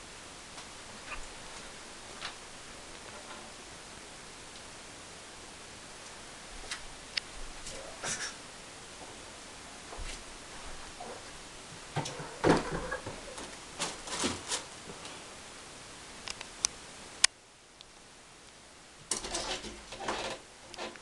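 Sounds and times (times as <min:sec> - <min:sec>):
cat landing thuds and scrabbling: 0:11.9 - 0:14.5.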